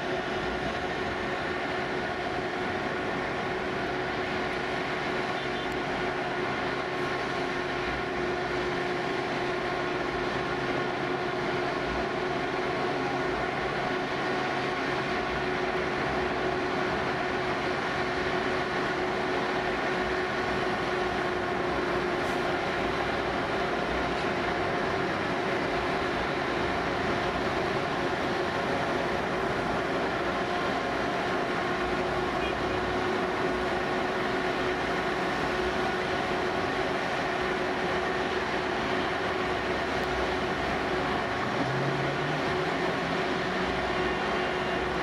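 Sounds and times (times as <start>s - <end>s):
engines humming: 0.0s - 45.0s.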